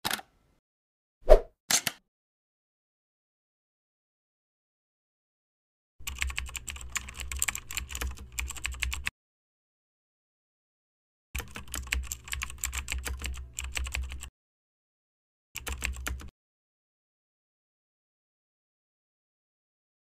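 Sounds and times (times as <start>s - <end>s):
keyboard typing: 6.0s - 9.1s, 11.4s - 14.3s, 15.6s - 16.3s.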